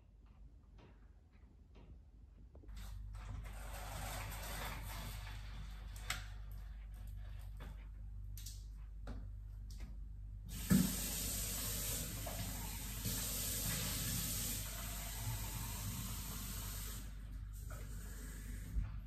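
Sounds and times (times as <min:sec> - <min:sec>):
tap running water into sink: 0:10.5 - 0:19.0.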